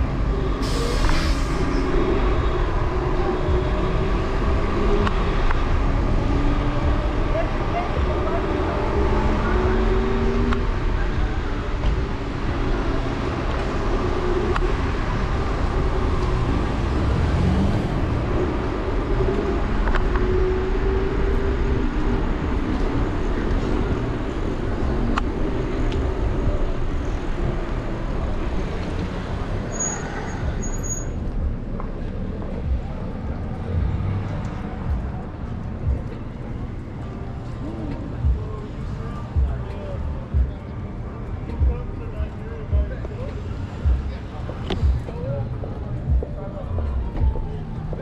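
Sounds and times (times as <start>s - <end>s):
cars passing: 0.0s - 48.0s
city street traffic: 0.0s - 48.0s.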